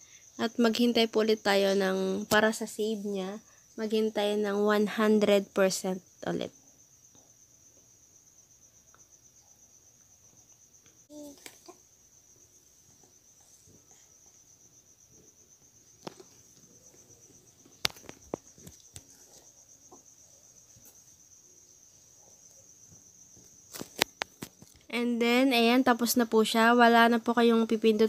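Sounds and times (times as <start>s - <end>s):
insect trilling: 0.0s - 28.0s.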